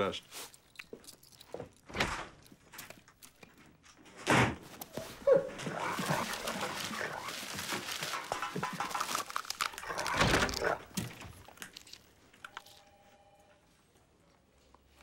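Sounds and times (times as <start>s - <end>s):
paper and bin liner rustling: 4.4s - 11.5s.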